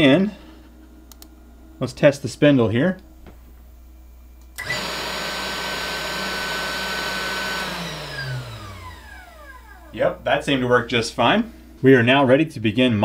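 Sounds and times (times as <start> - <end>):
spindle motor high whine: 4.6 - 10.5.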